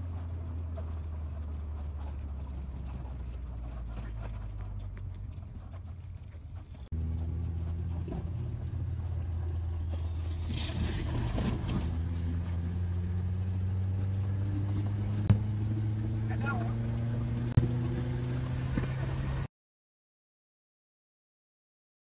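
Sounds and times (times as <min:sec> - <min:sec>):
car engine hum: 0:00.0 - 0:19.5
road noise inside car: 0:00.0 - 0:19.5.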